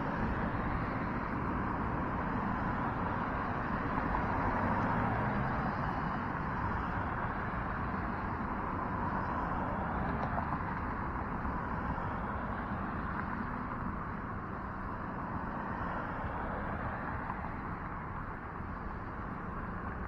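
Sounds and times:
wind and road rumble: 0.0 - 20.0.

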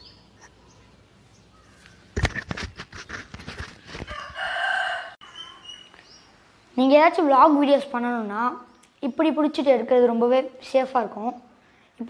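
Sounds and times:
rooster crowing: 4.1 - 5.7.

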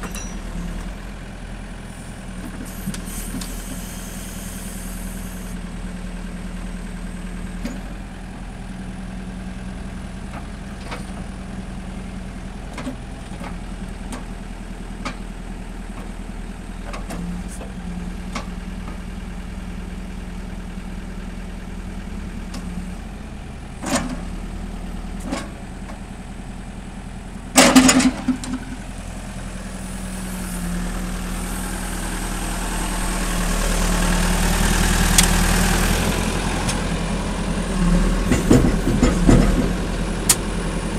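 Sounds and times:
diesel engine running: 0.0 - 40.9
metallic clanks and knocks: 27.6 - 28.8.

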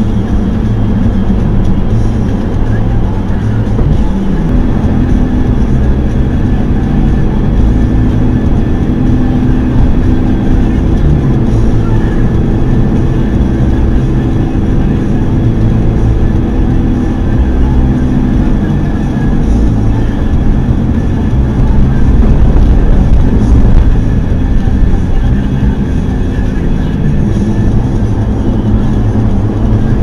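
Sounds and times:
car road and engine noise: 0.0 - 30.0.

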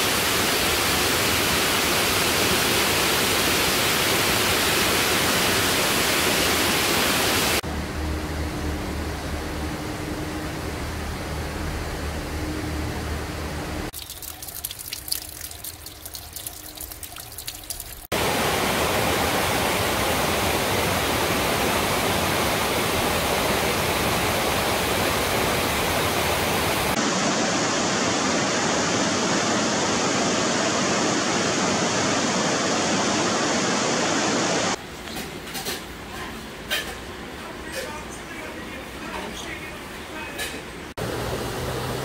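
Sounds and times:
water trickling and dripping: 13.9 - 18.2
stream rushing over rocks: 18.0 - 34.8.

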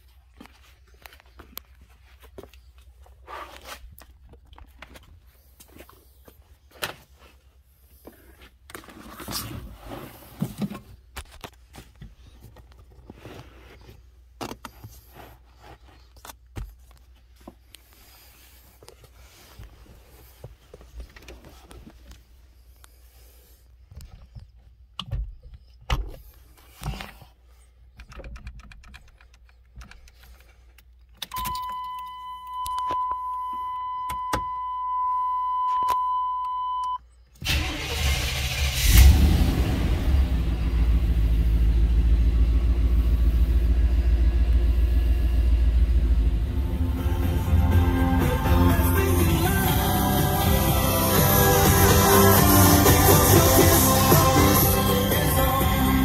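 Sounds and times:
rubber mat rustling and scraping: 0.1 - 22.4.

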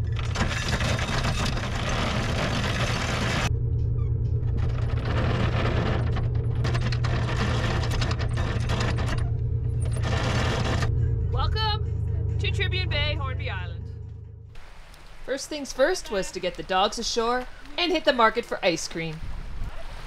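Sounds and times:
anchor chain rattling and clanking: 0.0 - 3.5, 4.5 - 10.9
boat engine humming: 0.0 - 19.2.

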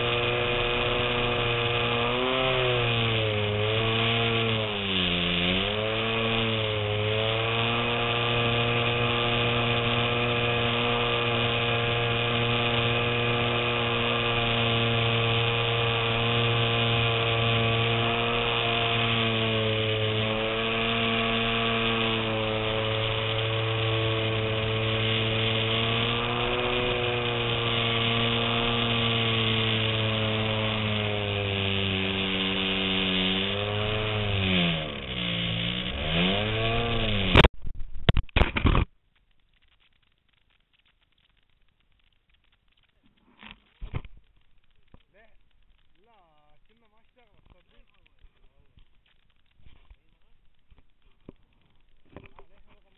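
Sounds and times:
model plane motor buzzing drone: 0.0 - 37.5.

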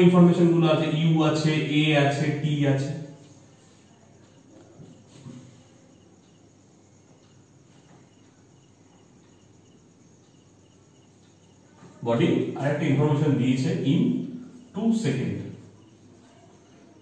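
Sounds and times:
crickets chirping: 0.0 - 17.0.

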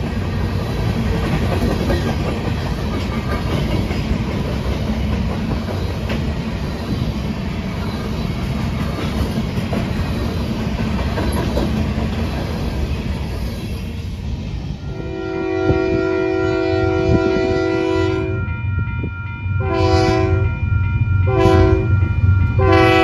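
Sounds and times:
wheels clicking over rail joints: 0.0 - 6.6
steel wheels rumbling on rails: 0.0 - 23.0.

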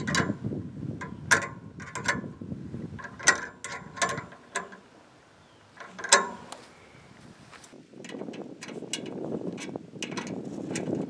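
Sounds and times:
hand tool clicking on steel: 1.0 - 2.2, 3.0 - 4.9, 5.8 - 6.6.

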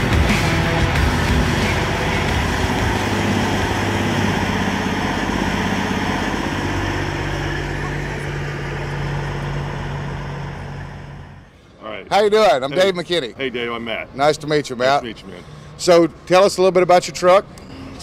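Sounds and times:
diesel truck engine idling: 0.0 - 11.8
higher hum: 0.0 - 11.9.

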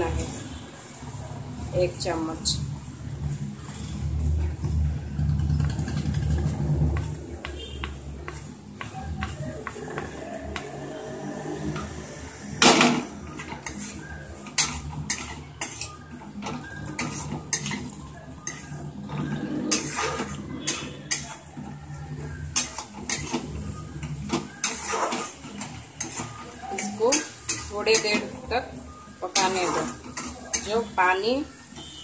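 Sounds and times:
steel spatula scraping a pan: 10.9 - 32.0.

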